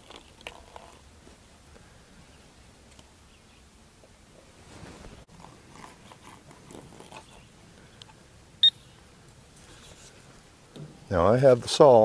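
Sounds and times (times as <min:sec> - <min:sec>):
faint rustling: 0:04.3 - 0:08.2, 0:09.2 - 0:11.4.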